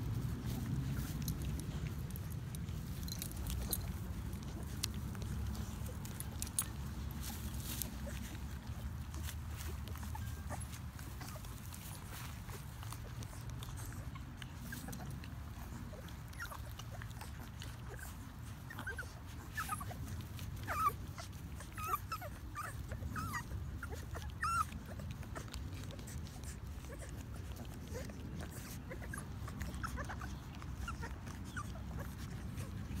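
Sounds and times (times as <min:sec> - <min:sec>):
puppies squeaking and whimpering: 0:00.0 - 0:33.0.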